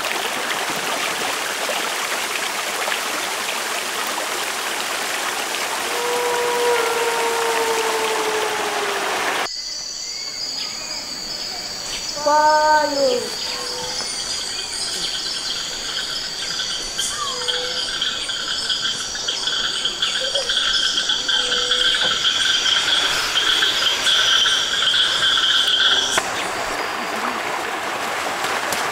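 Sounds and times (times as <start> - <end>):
water rushing over cascade: 0.0 - 9.5, 21.0 - 28.9
rising and falling call: 5.8 - 9.5, 21.0 - 26.2
shrill insect choruses: 5.8 - 26.2
faint chirps: 5.9 - 27.3.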